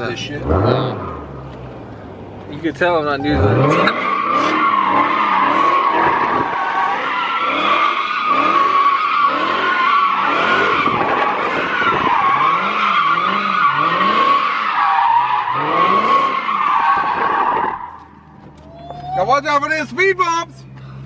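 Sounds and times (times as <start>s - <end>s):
car engine revving: 0.0s - 18.7s
tires squealing: 2.5s - 20.9s.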